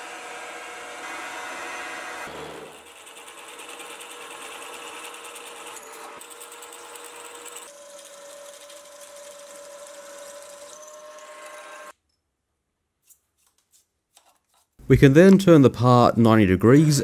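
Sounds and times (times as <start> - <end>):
milling machine drilling steel: 0.0 - 11.9.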